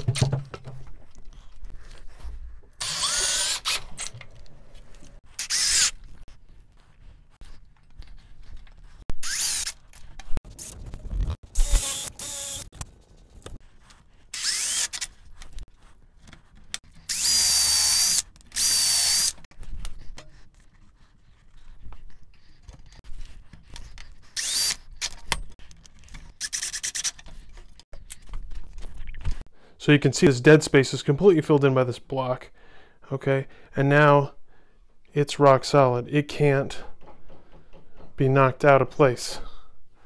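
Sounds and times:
handling clicks and knocks: 0:00.0 - 0:01.3
cordless drill driving screws: 0:02.8 - 0:04.1, 0:05.4 - 0:05.9, 0:09.2 - 0:09.8, 0:11.6 - 0:12.7, 0:14.3 - 0:15.2, 0:17.1 - 0:19.4, 0:24.4 - 0:25.2.

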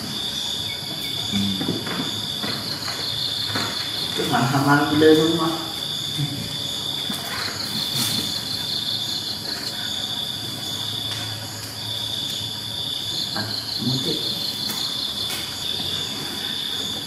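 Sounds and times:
faster-pulsing insect trill: 0:00.0 - 0:17.0
insects trilling: 0:00.0 - 0:17.0.

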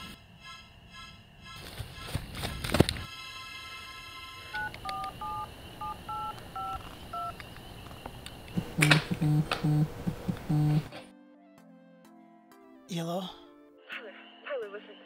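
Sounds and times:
touch-tone keypad beeps: 0:04.6 - 0:07.3
phone vibrating on rug: 0:08.6 - 0:10.9.

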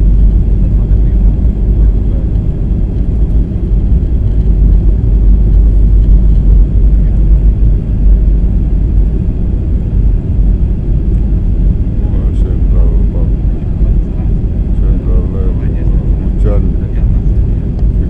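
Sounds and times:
jet engines rumbling in cabin: 0:00.0 - 0:18.0.

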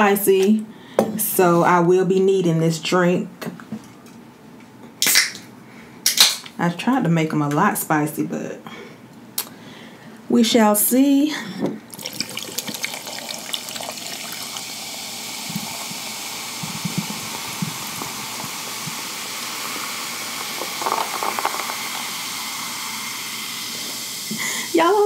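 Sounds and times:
drink pouring into glass: 0:11.9 - 0:24.4
bubbles fizzing: 0:11.9 - 0:24.9.

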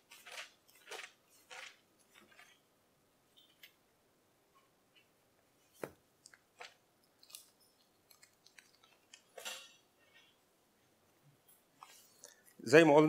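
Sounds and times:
paper rustling: 0:00.0 - 0:02.6.

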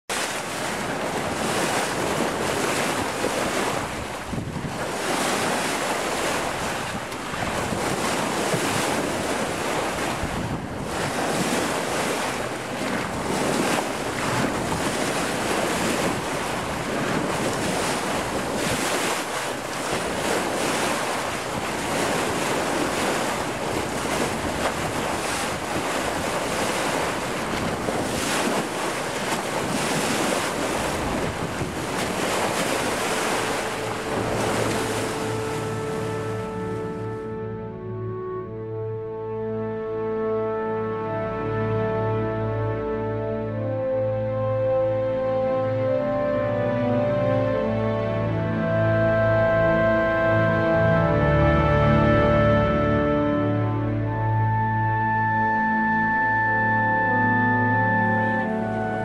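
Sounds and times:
water rushing along boat bow: 0:00.0 - 0:59.0
wind on microphone: 0:00.1 - 0:37.4.

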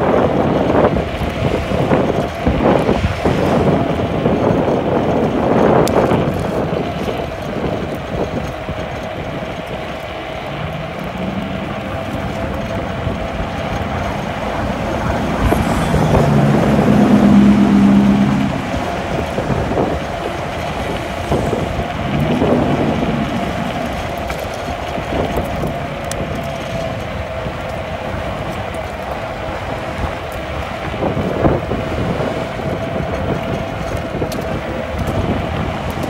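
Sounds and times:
electric scooter whine: 0:00.0 - 0:36.0
road rumble: 0:00.0 - 0:36.0
wind noise: 0:00.0 - 0:36.0
passing vehicle engine: 0:09.5 - 0:36.0.

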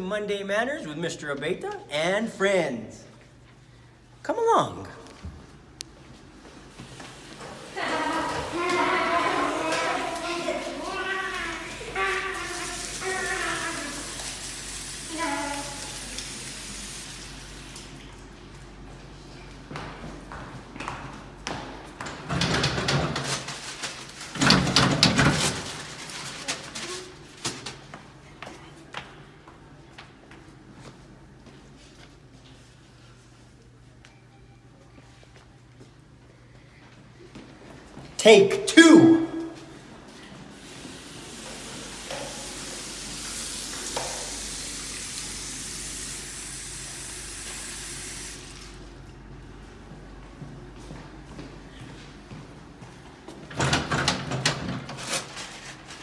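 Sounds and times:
water running into sink: 0:07.6 - 0:18.0, 0:40.5 - 0:48.9.

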